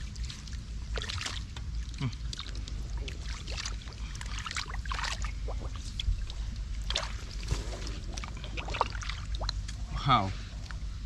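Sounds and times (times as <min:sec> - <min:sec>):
hands splashing in muddy water: 0:00.1 - 0:09.6
water dripping: 0:08.1 - 0:09.8.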